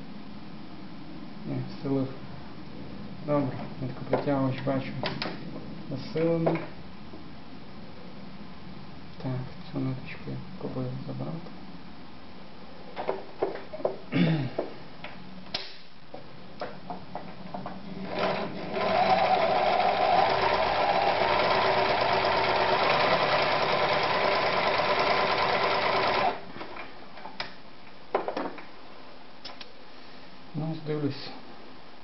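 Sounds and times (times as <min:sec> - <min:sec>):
sewing machine stitching: 0:18.0 - 0:26.5.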